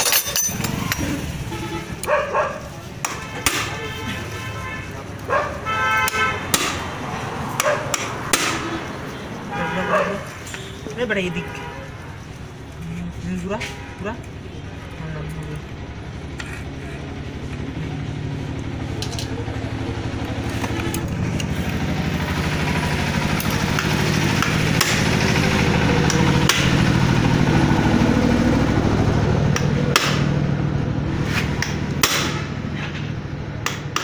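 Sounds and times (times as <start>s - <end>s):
metallic clinks of hand tools: 0.0s - 1.0s
engine hum: 0.0s - 34.0s.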